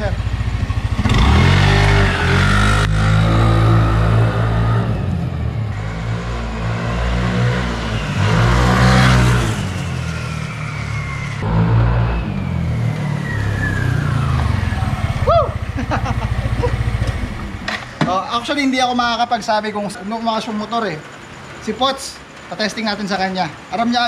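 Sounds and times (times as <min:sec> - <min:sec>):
scooter passing by: 0:00.0 - 0:17.9.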